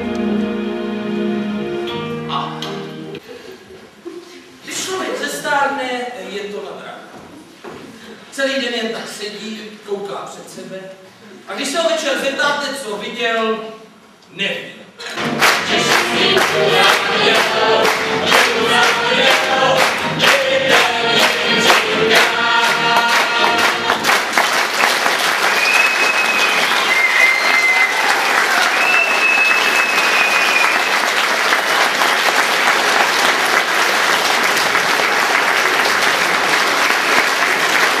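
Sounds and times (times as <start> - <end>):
audience applause: 15.1 - 38.0
audience clapping along: 15.1 - 38.0
cast singing: 15.4 - 24.1
high whistles: 25.5 - 31.2.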